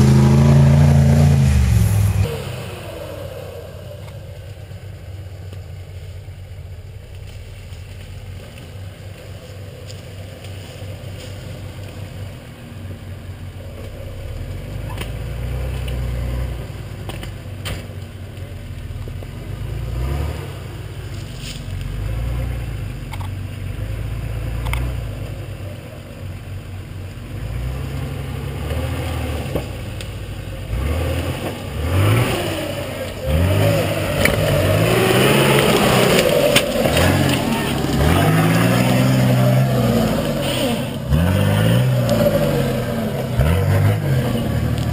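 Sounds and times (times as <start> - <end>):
truck engine revving: 0.0 - 4.6, 19.4 - 21.0, 27.2 - 44.9
truck knocks and clatters: 16.9 - 19.3, 33.0 - 44.9.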